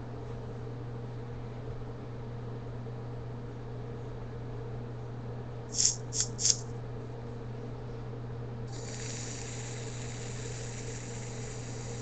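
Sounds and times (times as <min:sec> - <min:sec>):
sharp click: 0:05.7 - 0:06.6
air hissing with faint whistle: 0:08.7 - 0:12.0.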